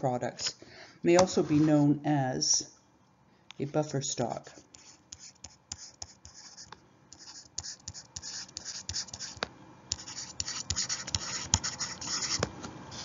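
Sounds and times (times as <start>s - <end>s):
pen scratching on paper: 4.7s - 13.0s.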